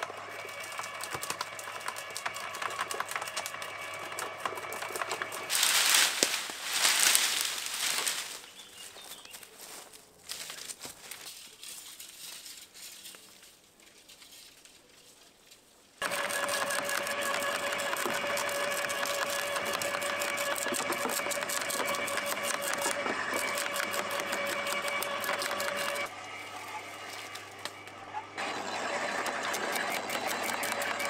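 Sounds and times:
wood chipper running: 0.0s - 8.5s, 16.0s - 31.0s.

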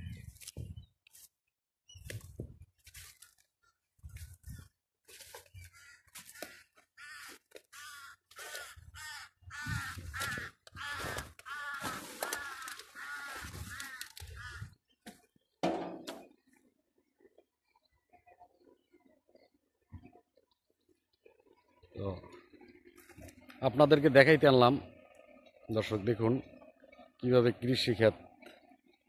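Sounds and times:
rustling through crop: 0.2s - 8.8s, 9.8s - 14.6s
crow cawing: 5.6s - 14.8s.

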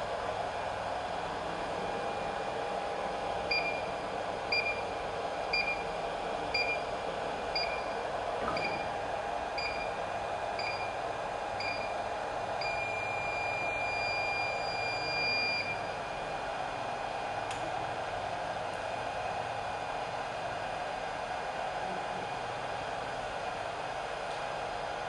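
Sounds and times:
hot-air blower hissing: 0.0s - 12.6s, 15.9s - 25.0s
long beep: 11.6s - 11.9s, 12.6s - 15.8s.

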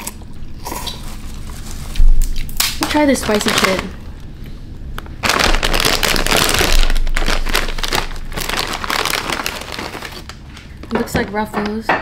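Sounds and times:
plastic chip bag crinkling: 0.8s - 11.0s.

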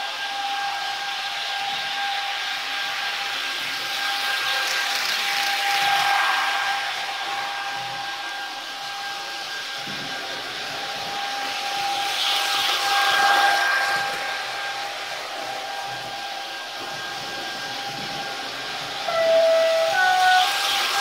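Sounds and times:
electric whine: 0.0s - 21.0s
hissing swell: 0.0s - 21.0s
horn-like stepped tones: 19.0s - 21.0s.

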